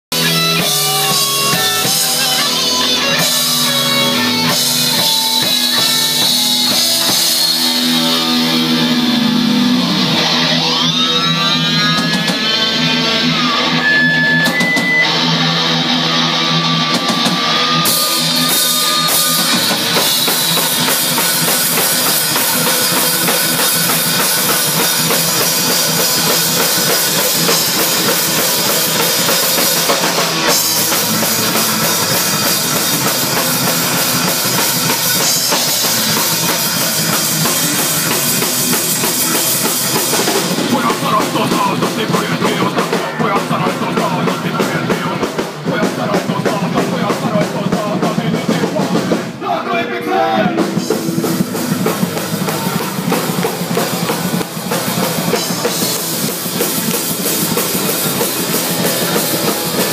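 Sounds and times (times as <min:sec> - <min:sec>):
rock band playing live: 0:00.0 - 0:59.9
electric guitar pitch glide: 0:00.2 - 0:40.8.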